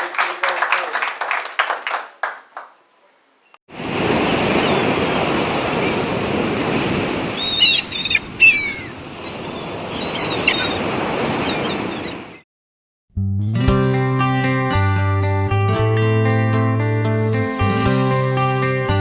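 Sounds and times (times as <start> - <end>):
ocean surf rushing: 3.7 - 12.1
seabirds calling: 7.3 - 12.4.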